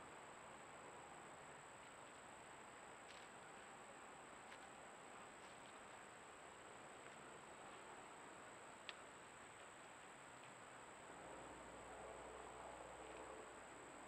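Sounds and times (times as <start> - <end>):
faint steady hiss: 0.0 - 14.0
faint click: 8.8 - 9.7.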